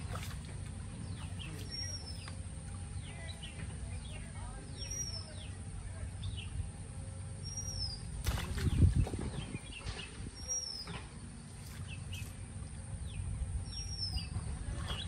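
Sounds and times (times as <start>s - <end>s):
water sloshing and splashing: 0.0s - 4.2s, 8.0s - 15.0s
bird whistle call: 7.4s - 8.0s, 13.7s - 14.4s.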